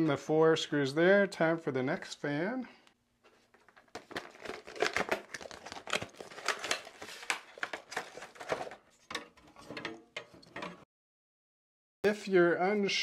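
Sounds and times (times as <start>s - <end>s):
packaging crinkling and rustling: 3.2s - 9.3s.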